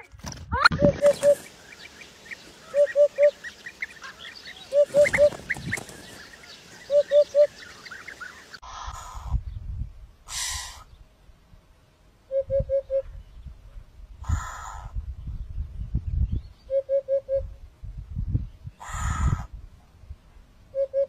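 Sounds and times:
small birds chirping: 0.6s - 9.8s
hoopoe hooting: 0.7s - 8.6s.

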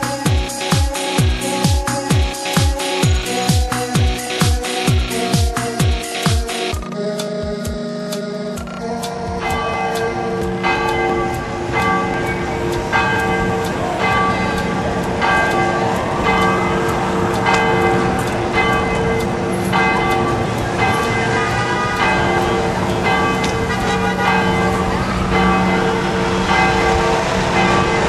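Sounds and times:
church bells ringing: 9.4s - 28.0s.

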